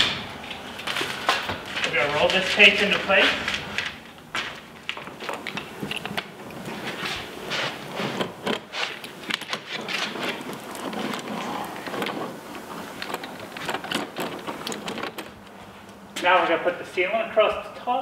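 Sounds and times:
seam roller rubbing on tape: 6.6 - 14.6.

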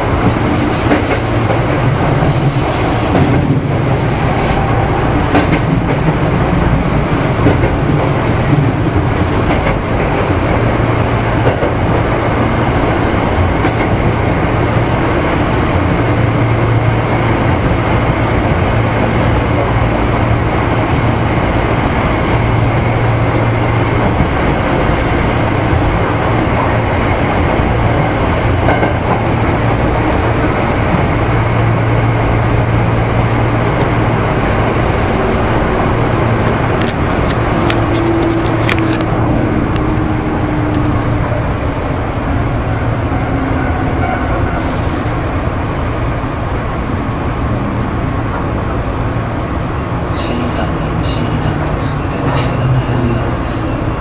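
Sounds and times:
train low hum: 0.0 - 54.0
train wheels rumbling: 0.0 - 54.0
rail-joint clacks: 0.2 - 12.1, 27.8 - 31.1, 36.4 - 41.3.

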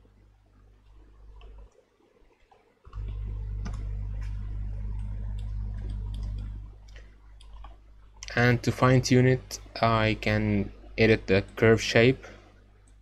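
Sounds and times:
loud low hum: 2.9 - 12.8.

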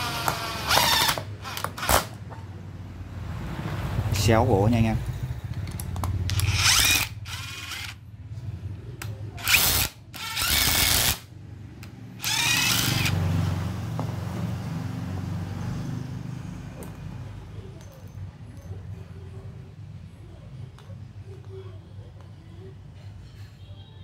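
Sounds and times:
impact driver driving screws: 0.0 - 2.2, 6.2 - 8.0, 9.4 - 11.2, 12.2 - 13.2.

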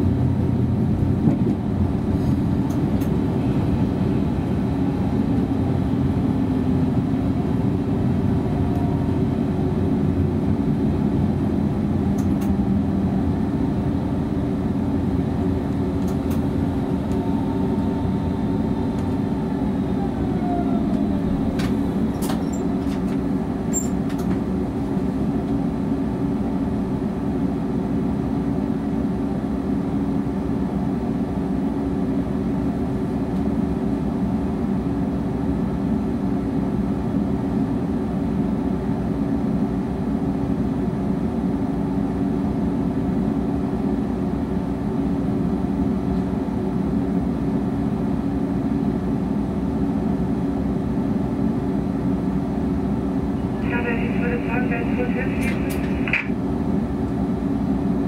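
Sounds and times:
wheels rumbling on rails: 0.0 - 27.6.

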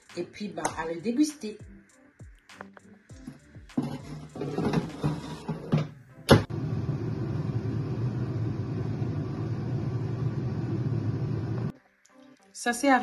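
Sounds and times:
air fryer fan humming: 6.3 - 11.7.

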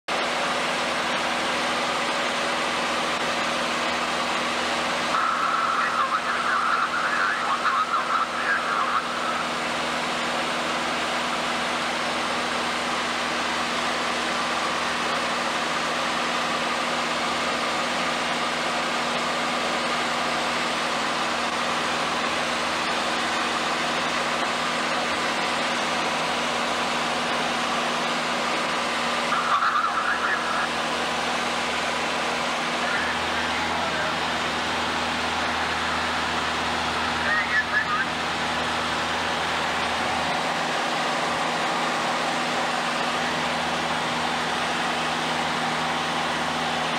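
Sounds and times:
light aircraft engine drone: 0.1 - 46.9
low hums: 20.2 - 46.9.

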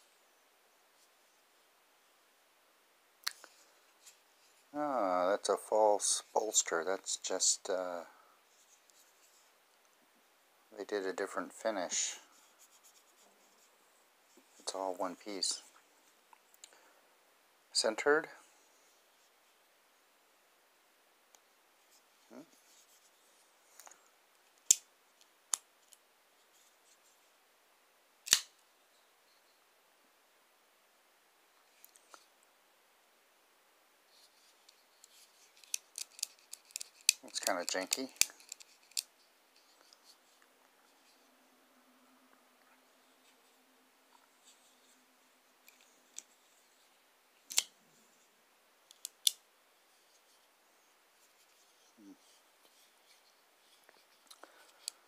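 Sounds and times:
folding knife blade snapping: 28.3 - 28.5
handling rustle: 34.1 - 41.3.

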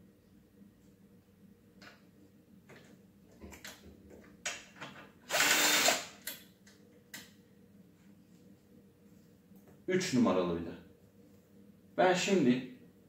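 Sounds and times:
clicks and knocks of handling parts: 2.6 - 5.2
cordless drill running: 5.3 - 6.2.

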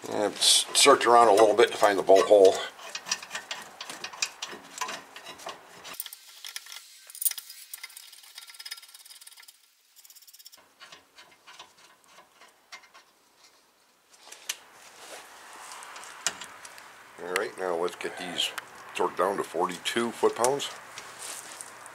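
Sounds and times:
metal tools clicking and scraping: 0.4 - 13.5.

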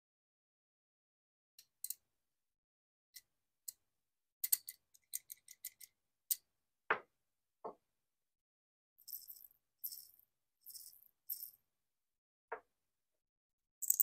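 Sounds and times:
beads clicking inside wooden cube: 9.1 - 11.6.

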